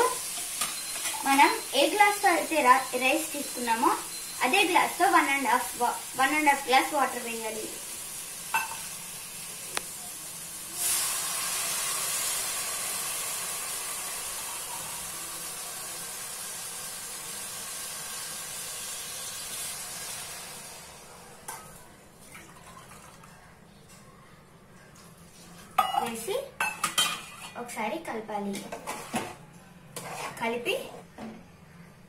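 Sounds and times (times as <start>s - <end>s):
water hissing in hot pot: 0.0s - 21.0s.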